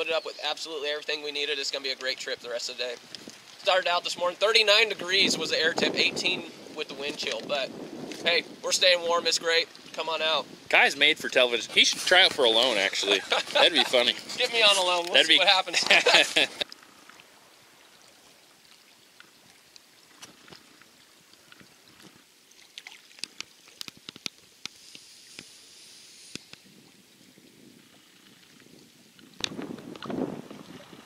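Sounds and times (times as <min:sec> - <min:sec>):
water dripping off paddles: 0:00.0 - 0:25.6
rush of moving water: 0:00.0 - 0:31.0
water splashing: 0:01.7 - 0:26.8
wind on microphone: 0:04.8 - 0:15.0, 0:26.3 - 0:31.0.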